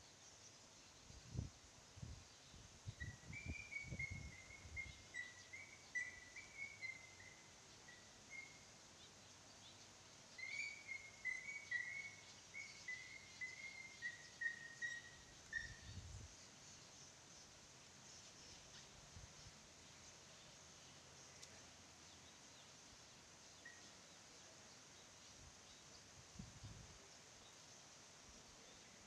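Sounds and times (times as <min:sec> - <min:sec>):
faint high chirps: 0:02.9 - 0:09.1, 0:10.3 - 0:17.5, 0:23.4 - 0:27.7.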